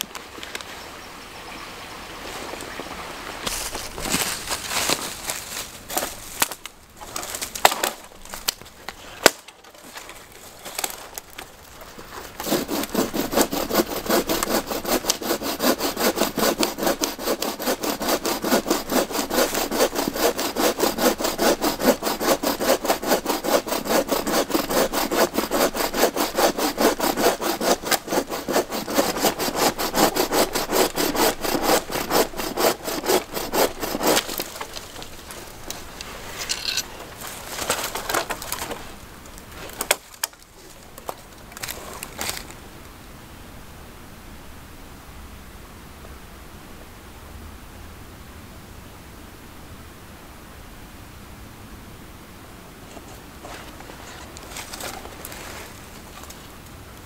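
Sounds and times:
saw rasping through log: 12.2s - 35.8s
saw knocking on log: 12.4s - 34.8s.

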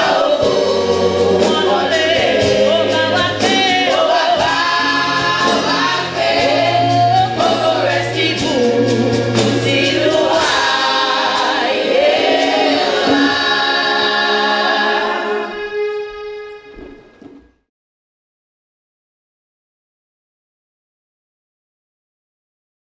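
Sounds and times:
women's gospel choir singing: 0.0s - 15.8s.

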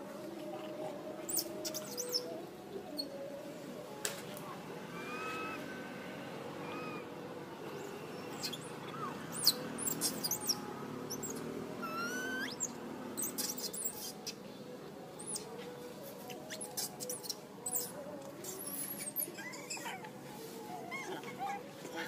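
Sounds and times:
monkeys squeaking: 1.3s - 2.3s, 5.0s - 5.6s, 8.3s - 14.4s, 16.2s - 20.2s.

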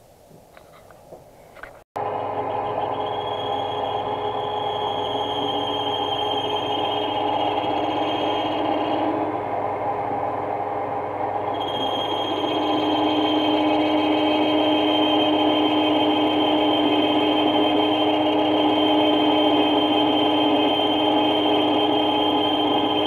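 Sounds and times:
high steady whine: 2.0s - 23.0s
lathe machine hum: 2.0s - 23.0s.

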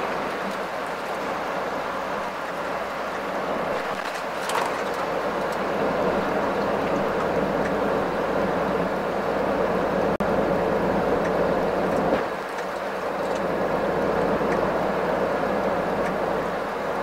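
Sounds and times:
truck engine and tyre drone: 0.0s - 17.0s.

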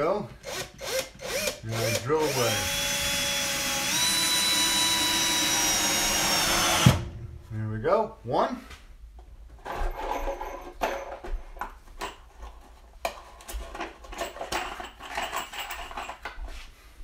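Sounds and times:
metal screws clinking and rattling: 9.6s - 16.5s.

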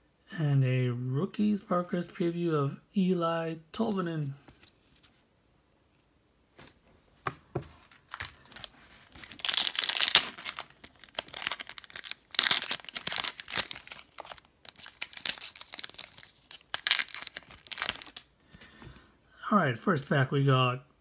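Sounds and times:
soft handling knocks: 6.6s - 7.9s
foil wrapper tearing and crinkling: 7.9s - 18.3s.

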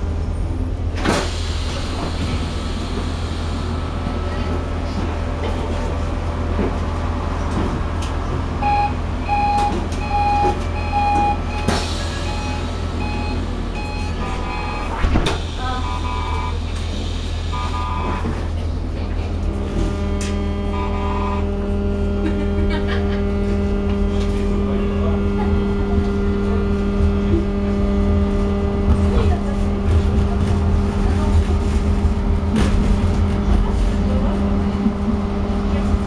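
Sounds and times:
tram equipment hum: 0.0s - 36.0s
tram motor hum: 0.0s - 36.0s
short beeps: 8.6s - 15.0s.

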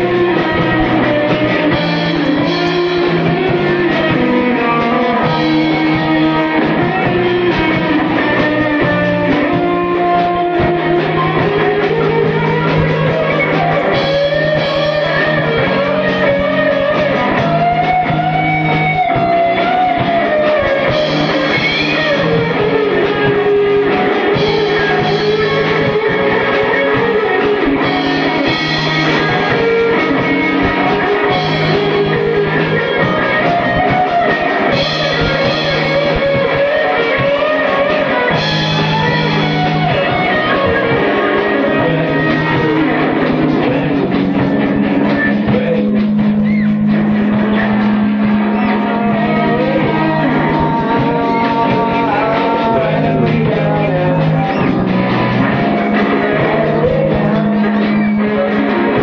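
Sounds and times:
bass guitar: 0.0s - 59.0s
drum kit: 0.0s - 59.0s
electric guitars: 0.0s - 59.0s
lead vocal singing: 34.3s - 46.7s, 47.4s - 59.0s.

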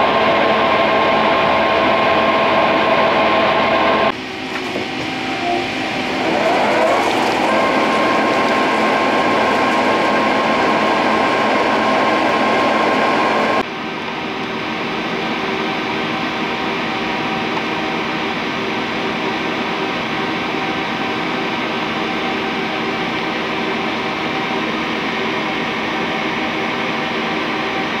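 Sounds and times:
industrial machinery drone: 0.0s - 13.7s
steady high tone: 5.0s - 9.5s.

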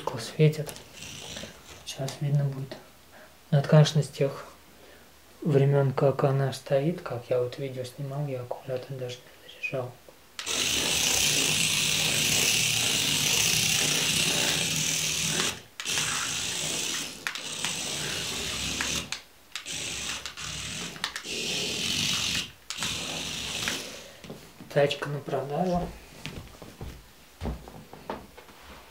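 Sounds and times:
small electric motor whine: 0.7s - 1.8s, 10.4s - 24.0s.

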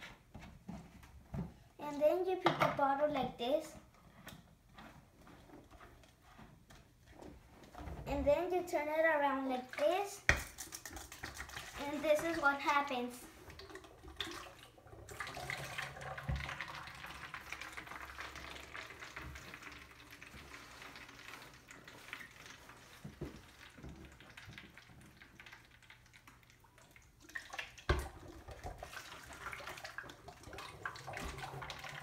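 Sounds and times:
water gurgling and draining: 13.2s - 32.0s.

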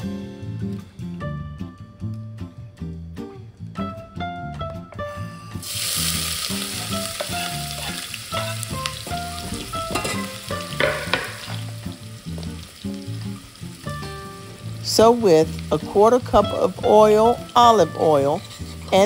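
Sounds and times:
background music: 0.0s - 19.0s
onion sizzling in hot oil: 5.6s - 19.0s.

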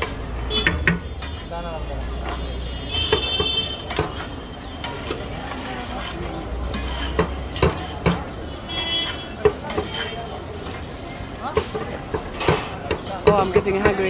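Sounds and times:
metal-on-metal knocks: 0.0s - 1.5s, 6.7s - 8.3s
masher scraping on griddle: 0.0s - 14.0s.

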